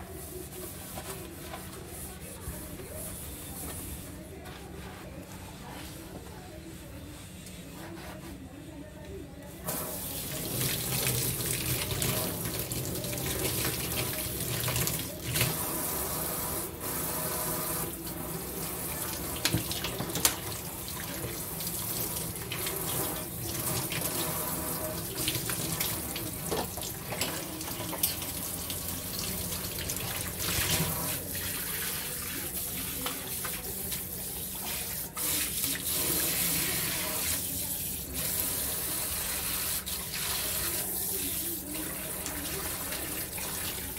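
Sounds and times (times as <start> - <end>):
faucet running into metal sink: 17.7 - 43.9.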